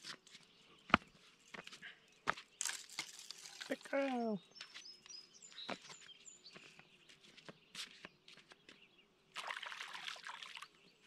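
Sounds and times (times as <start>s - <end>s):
footsteps on rock: 0.0s - 3.3s, 4.0s - 8.9s.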